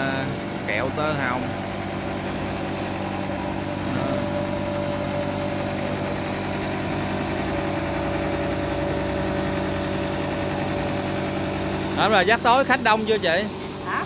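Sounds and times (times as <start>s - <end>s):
small engine droning: 0.0s - 14.0s.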